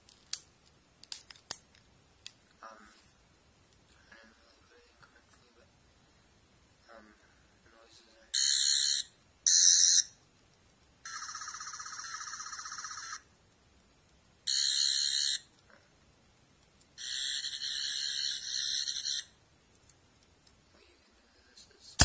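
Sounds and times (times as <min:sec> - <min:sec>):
toy electronic buzzing: 0:14.5 - 0:15.4, 0:17.0 - 0:19.3.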